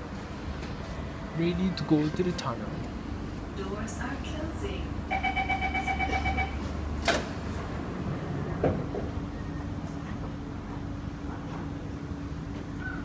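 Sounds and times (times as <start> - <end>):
train humming: 0.0 - 13.0
train door chime beeping: 5.1 - 6.7.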